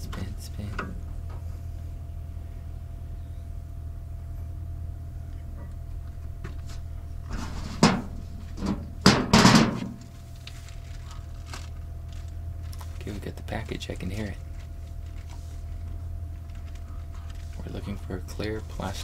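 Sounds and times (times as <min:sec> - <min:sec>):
steady low hum: 0:00.0 - 0:19.0
objects rattling: 0:06.4 - 0:13.1.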